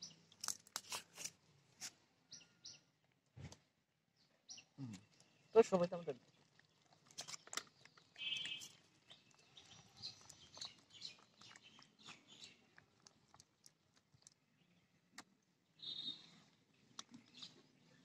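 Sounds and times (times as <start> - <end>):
hand squelching batter in bowl: 5.9 - 17.8.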